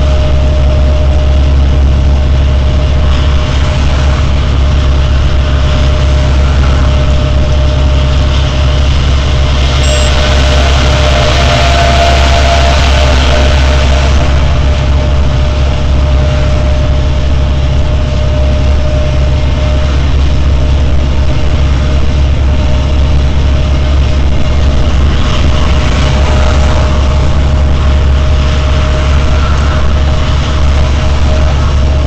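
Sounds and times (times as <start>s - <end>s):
truck engine and tyres rumbling: 0.0s - 32.0s
faint steady high tone: 9.8s - 10.7s.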